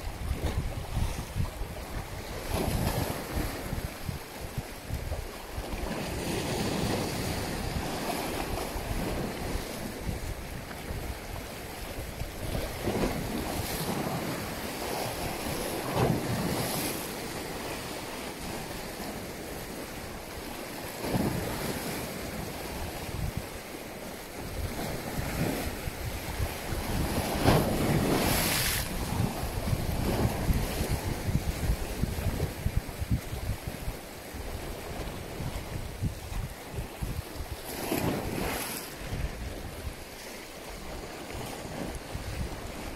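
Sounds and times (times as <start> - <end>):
wind rumbling on microphone: 0.0 - 42.9
sea waves washing: 5.7 - 36.1.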